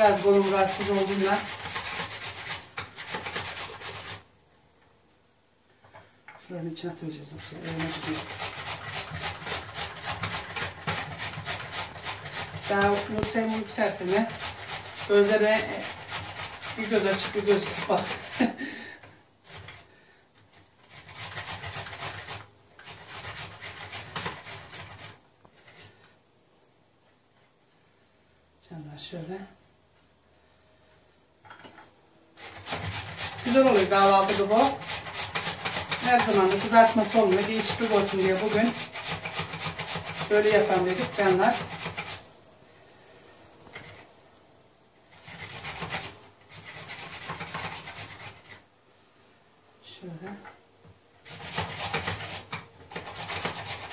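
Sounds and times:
potato grating rasps: 0:00.0 - 0:04.3, 0:07.1 - 0:26.1, 0:32.4 - 0:42.4, 0:43.6 - 0:44.1, 0:45.1 - 0:48.7, 0:51.2 - 0:53.9.

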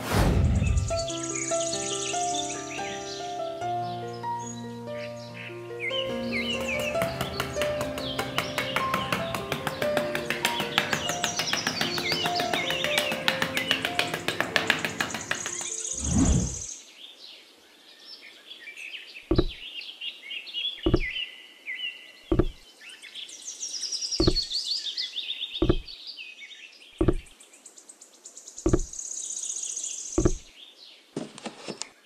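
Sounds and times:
birds chirping and trilling: 0:00.4 - 0:32.0
dull knocks of small bricks: 0:19.3 - 0:19.6, 0:20.9 - 0:21.1, 0:22.3 - 0:22.6, 0:24.2 - 0:24.5, 0:25.6 - 0:25.9, 0:27.0 - 0:27.3, 0:28.7 - 0:28.9, 0:30.2 - 0:30.5.

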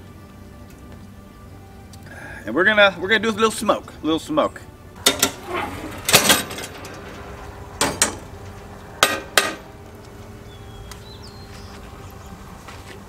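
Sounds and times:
metal smoker lid clanking: 0:05.0 - 0:09.8.

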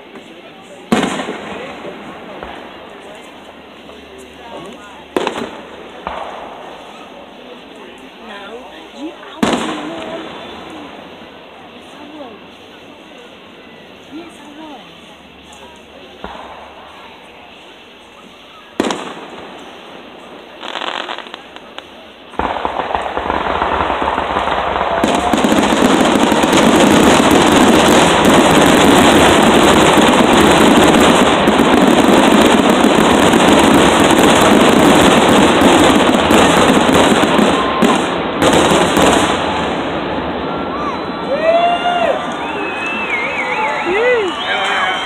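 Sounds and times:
rapid firework bursts and crackle: 0:00.0 - 0:45.0
sharp firework bang: 0:18.8 - 0:19.8, 0:22.4 - 0:41.0.

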